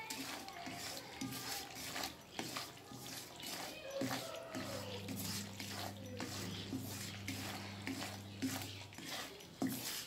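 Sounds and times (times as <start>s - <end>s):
spatula scraping iron pan: 0.0s - 10.0s
steady low hum: 5.0s - 9.0s.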